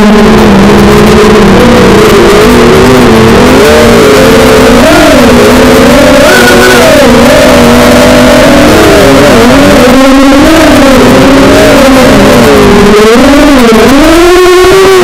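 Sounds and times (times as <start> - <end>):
quadcopter motors whining: 0.0 - 15.0.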